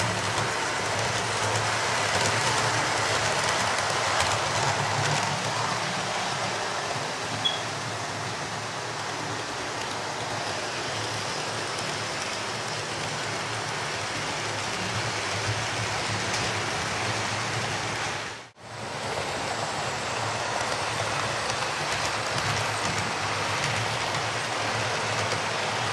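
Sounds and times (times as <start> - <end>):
model train wheels rattling on track: 0.0 - 7.1, 20.3 - 25.9
model locomotive motors: 0.0 - 25.9.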